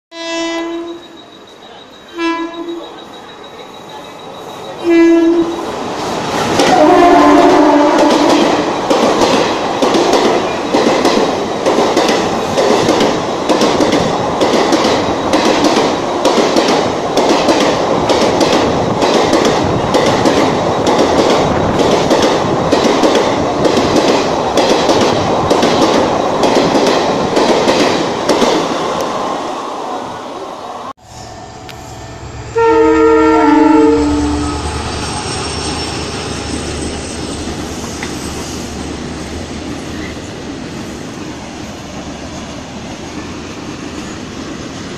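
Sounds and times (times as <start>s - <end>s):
train horn blasts: 0.1s - 1.2s, 2.1s - 2.9s, 4.8s - 5.6s, 6.7s - 8.6s, 31.0s - 36.0s
train rushing past: 0.2s - 44.9s.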